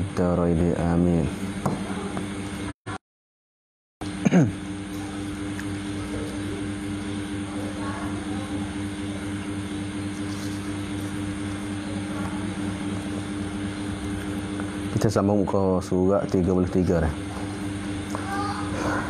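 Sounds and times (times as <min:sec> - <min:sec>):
low machine hum: 0:00.0 - 0:02.8, 0:04.0 - 0:19.0.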